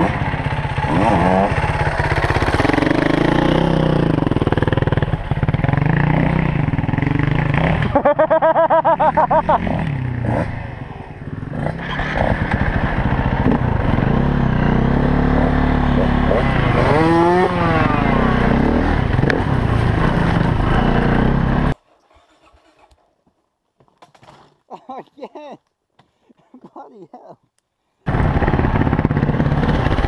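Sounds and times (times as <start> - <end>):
dirt bike engine revving: 0.0 - 21.8.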